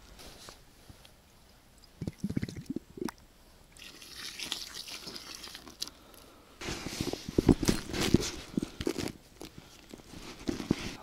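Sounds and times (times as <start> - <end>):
bottle filling with gurgling water: 2.0 - 3.2
water pouring onto groundbait: 3.8 - 5.9.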